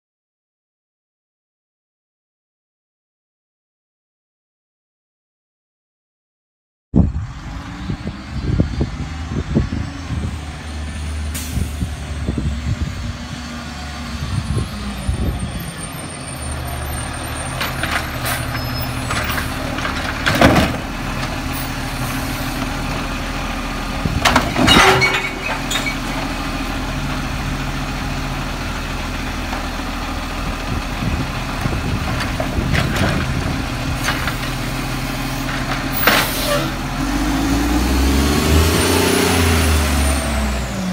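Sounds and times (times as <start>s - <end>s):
diesel engine running: 7.0s - 40.9s
metal clanks: 24.2s - 26.3s.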